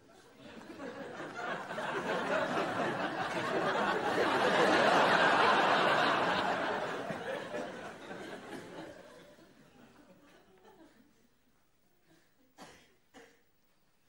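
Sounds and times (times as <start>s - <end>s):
studio audience laughing: 0.2s - 11.0s.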